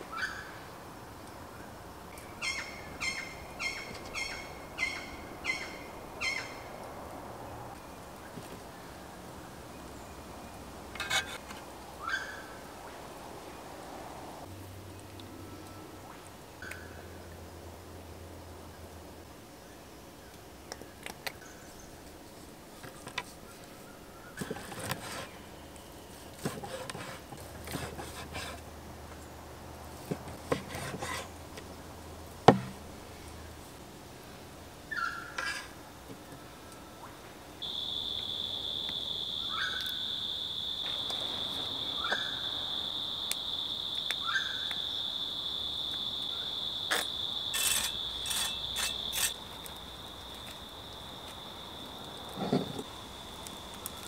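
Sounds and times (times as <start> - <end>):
insect high-pitched drone: 37.6 - 54.0
short insect chirps: 37.6 - 54.0.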